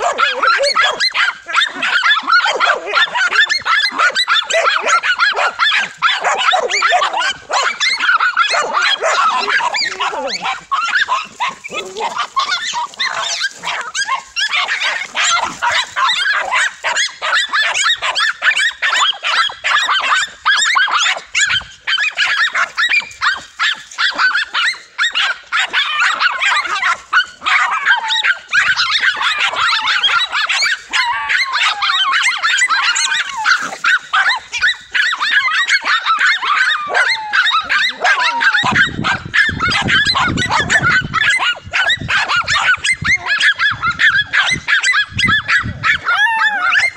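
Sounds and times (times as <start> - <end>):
dogs barking and yapping: 0.0 - 46.9.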